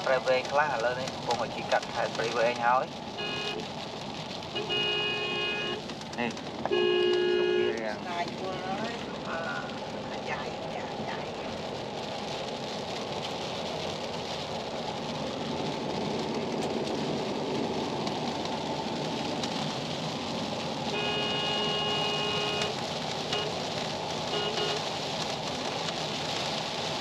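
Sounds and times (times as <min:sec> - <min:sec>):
road traffic noise: 0:00.0 - 0:27.0
vehicle horn: 0:03.2 - 0:03.7, 0:04.6 - 0:05.8, 0:06.7 - 0:07.8, 0:20.9 - 0:23.6, 0:24.3 - 0:24.8.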